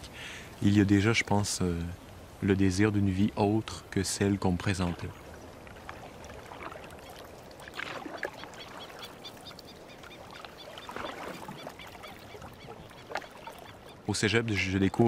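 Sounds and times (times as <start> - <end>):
paddle pulling through water: 3.8 - 15.0.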